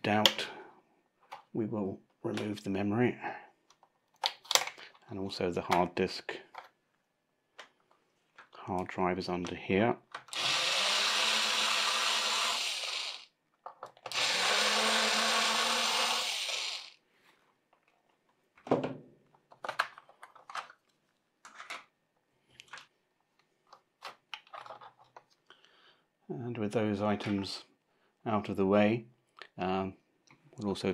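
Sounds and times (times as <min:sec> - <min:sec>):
electric screwdriver running: 0:10.3 - 0:13.3, 0:14.1 - 0:17.0.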